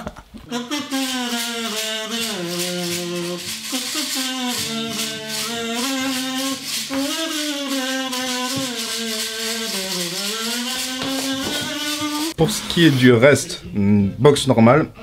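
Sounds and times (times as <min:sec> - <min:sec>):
acoustic guitar: 0:00.0 - 0:15.0
person singing long notes: 0:00.5 - 0:12.4
rattle shaken: 0:00.8 - 0:12.4.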